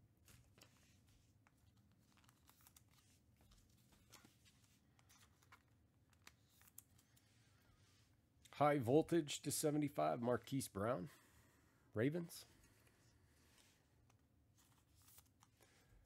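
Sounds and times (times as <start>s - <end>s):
trading cards being handled: 0.2s - 8.2s, 12.4s - 15.9s.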